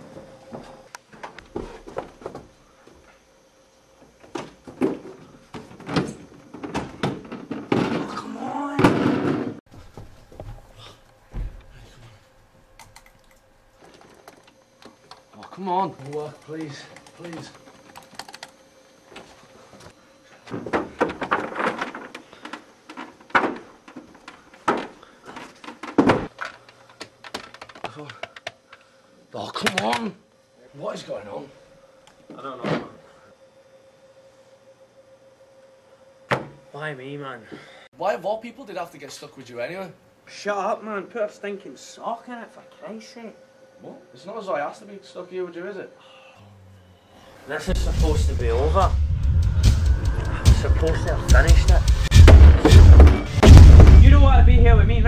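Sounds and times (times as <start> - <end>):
heavy door thumps: 49.3 - 55.0.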